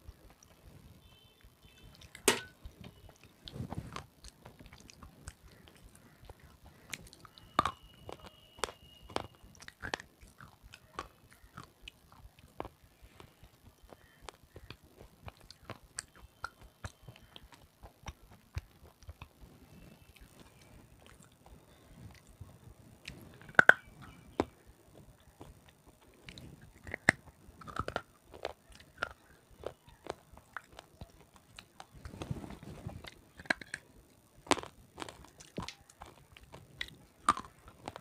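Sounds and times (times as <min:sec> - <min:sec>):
chewing crisp crunches: 0:01.7 - 0:38.0.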